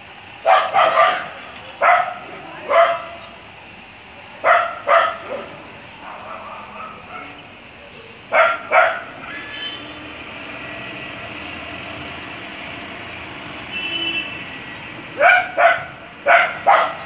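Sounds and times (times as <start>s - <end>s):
outdoor background noise: 0.0s - 17.0s
dog barking: 0.4s - 3.2s, 4.4s - 7.4s, 8.3s - 9.2s, 15.2s - 17.0s.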